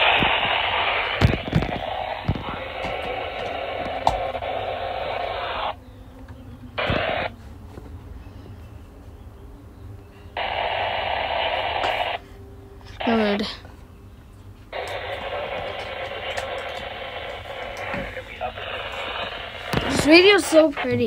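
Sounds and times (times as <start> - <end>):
radio static hiss: 0.0 - 5.8, 6.8 - 7.4, 10.3 - 13.6, 14.7 - 21.0.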